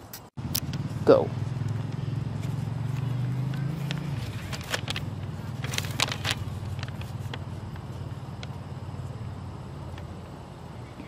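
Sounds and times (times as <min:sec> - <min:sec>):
low vehicle engine hum: 0:00.4 - 0:11.0
paper crinkling: 0:03.7 - 0:08.1.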